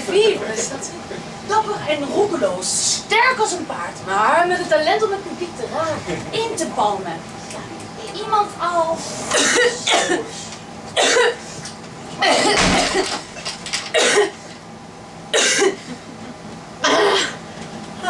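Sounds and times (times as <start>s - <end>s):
person coughing hard: 9.3s - 10.3s, 11.0s - 11.4s, 13.9s - 14.4s, 15.3s - 15.9s, 16.8s - 17.4s.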